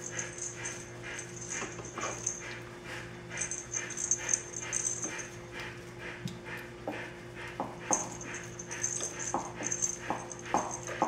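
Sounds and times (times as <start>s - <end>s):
puppies whimpering and squeaking: 0.0s - 2.6s, 3.4s - 5.4s
steady low hum: 0.0s - 11.0s.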